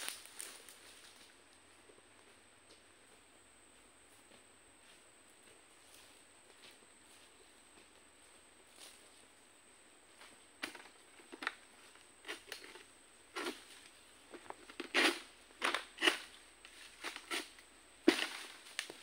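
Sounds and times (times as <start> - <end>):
sickle cutting palm fronds: 14.7 - 19.0.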